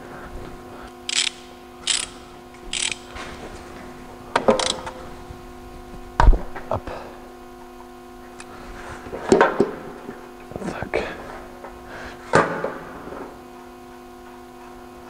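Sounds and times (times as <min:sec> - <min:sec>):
metallic clicks: 0:01.1 - 0:03.1, 0:04.6 - 0:04.9
ratchet wrench strokes: 0:01.1 - 0:03.1, 0:04.6 - 0:04.9.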